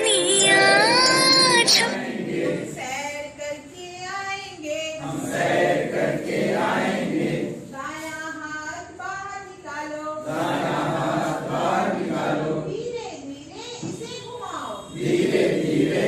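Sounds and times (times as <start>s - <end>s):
group singing: 0.0s - 2.8s, 5.0s - 7.7s, 10.2s - 12.7s, 15.0s - 16.0s.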